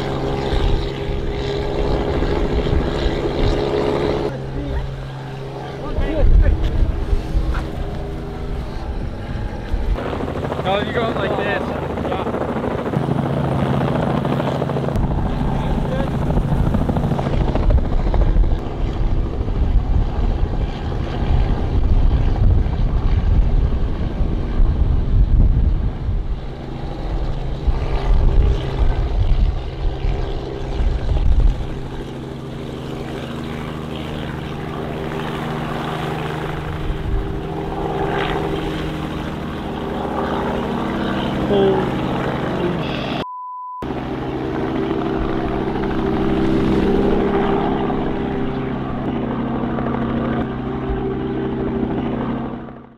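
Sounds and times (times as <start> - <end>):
helicopter engine and rotor: 0.0 - 43.2, 43.8 - 52.9.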